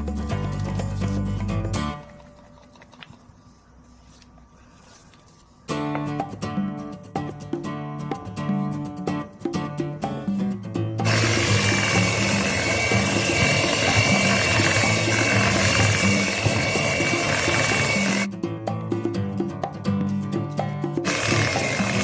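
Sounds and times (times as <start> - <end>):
acoustic guitar music: 0.0 - 2.3, 5.7 - 22.0
electric hand mixer whining: 11.0 - 18.3, 21.0 - 22.0.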